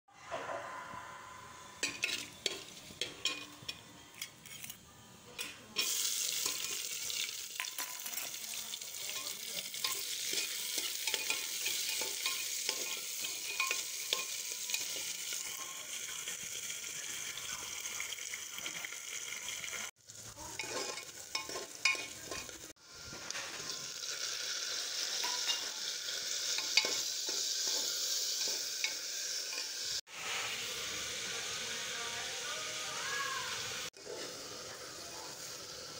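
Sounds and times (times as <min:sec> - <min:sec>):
onions sizzling: 0:00.9 - 0:04.8, 0:05.4 - 0:35.9
spoon stirring against pot: 0:01.8 - 0:04.8, 0:09.0 - 0:15.4, 0:20.6 - 0:22.7, 0:25.2 - 0:25.7, 0:26.5 - 0:29.8
seeds crackling in hot oil: 0:05.4 - 0:35.9.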